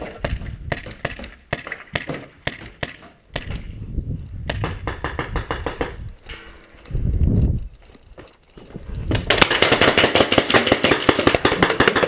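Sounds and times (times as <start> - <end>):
paintball markers firing: 9.1 - 12.0.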